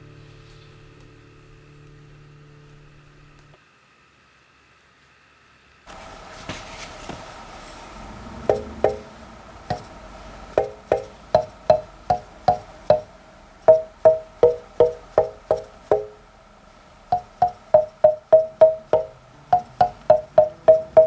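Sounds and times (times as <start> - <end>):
wooden tongue drum notes: 8.0 - 16.2, 17.1 - 21.0.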